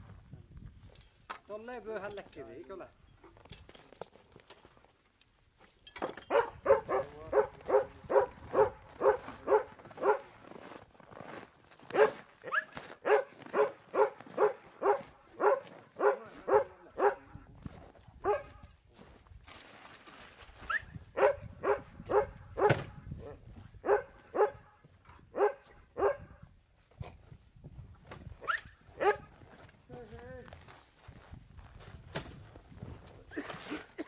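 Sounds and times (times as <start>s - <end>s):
dog barking: 6.3s - 10.3s, 11.9s - 17.4s, 18.2s - 18.6s, 21.2s - 22.8s, 23.8s - 24.7s, 25.3s - 26.4s, 28.4s - 29.3s.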